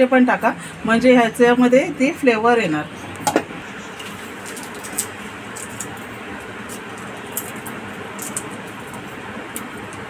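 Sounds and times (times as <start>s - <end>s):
garlic skins crackling: 4.0s - 10.0s.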